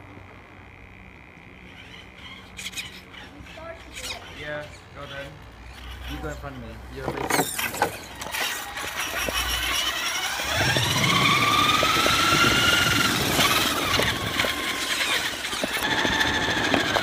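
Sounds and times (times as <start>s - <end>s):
toy truck motor whining: 1.5s - 17.0s
small ticks: 8.2s - 10.0s.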